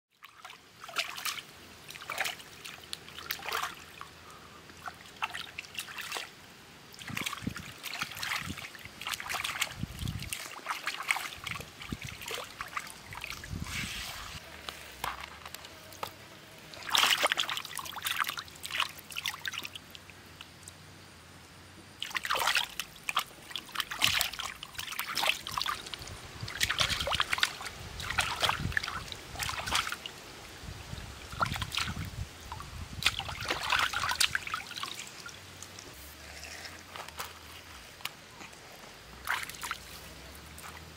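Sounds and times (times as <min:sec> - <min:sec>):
running water trickling: 0:00.1 - 0:40.9
hand splashing in water: 0:16.7 - 0:19.8.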